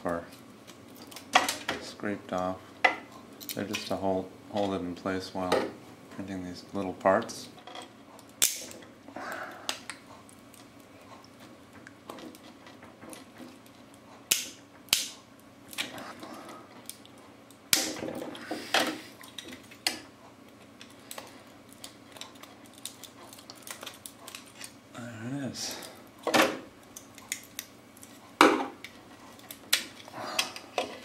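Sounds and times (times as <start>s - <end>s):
hard plastic snapping: 8.3s - 8.9s, 14.3s - 16.0s.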